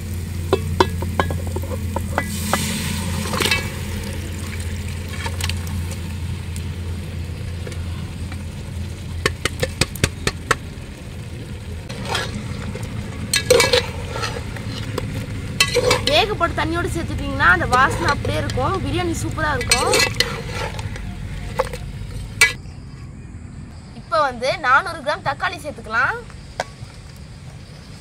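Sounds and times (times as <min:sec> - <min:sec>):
meat sizzling in hot oil: 0:00.0 - 0:22.5
metal ladle scraping a pot: 0:00.5 - 0:03.8, 0:11.9 - 0:16.4, 0:17.6 - 0:18.6, 0:19.5 - 0:22.6.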